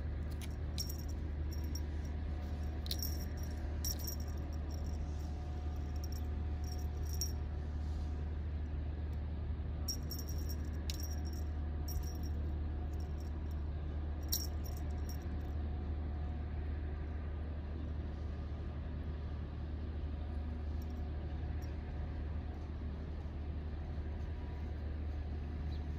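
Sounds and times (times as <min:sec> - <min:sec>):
faint steady whine: 0:00.0 - 0:08.4
low machine hum: 0:00.0 - 0:25.9
metallic clicks and jingles: 0:00.3 - 0:05.2, 0:05.8 - 0:07.4, 0:09.9 - 0:12.4, 0:14.2 - 0:15.2.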